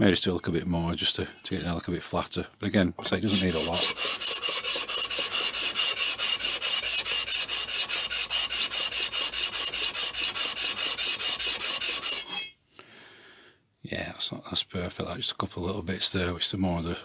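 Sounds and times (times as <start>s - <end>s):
metal scraping on abrasive paper: 3.2s - 12.5s.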